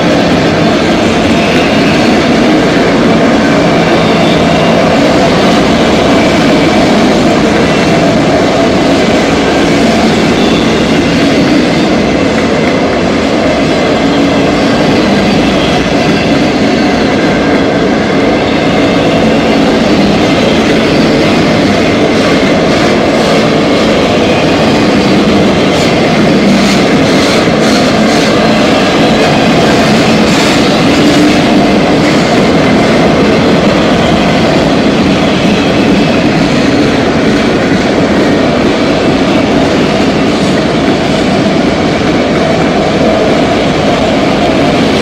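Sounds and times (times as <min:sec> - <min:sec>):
steel train wheels rumbling on rails: 0:00.0 - 0:45.0.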